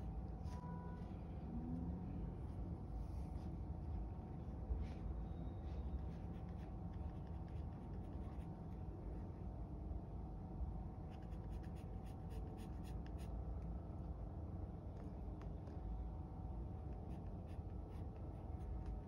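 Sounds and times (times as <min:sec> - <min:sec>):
steady low hum: 0:00.0 - 0:19.0
pencil scratching on paper: 0:11.1 - 0:13.3.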